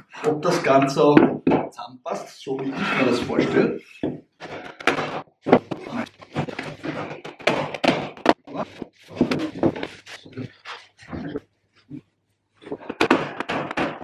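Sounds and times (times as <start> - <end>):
mallet knocking wooden boards: 0.4 - 1.7, 3.4 - 10.1, 12.7 - 14.0.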